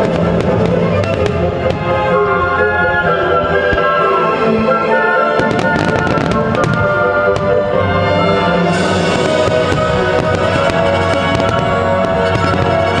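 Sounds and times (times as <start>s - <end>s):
loud music: 0.0s - 13.0s
firework bursts and crackling: 5.4s - 7.5s, 8.7s - 13.0s.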